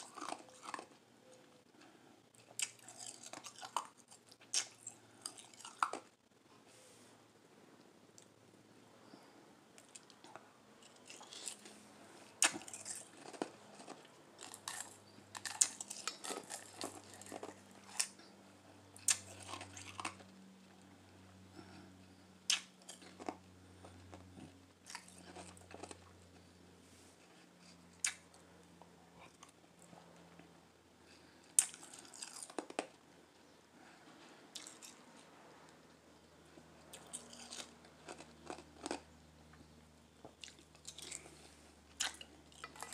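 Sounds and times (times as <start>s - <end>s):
ice crunching while chewed: 0.0s - 1.0s, 1.8s - 6.2s, 9.8s - 20.5s, 21.5s - 26.6s, 31.1s - 33.0s, 34.5s - 35.2s, 36.6s - 42.9s.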